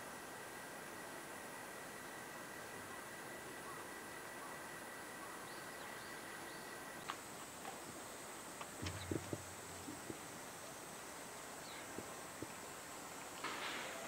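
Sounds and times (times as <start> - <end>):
faint steady background: 0.0 - 14.0
gorilla knuckle-walking on concrete: 7.0 - 11.0.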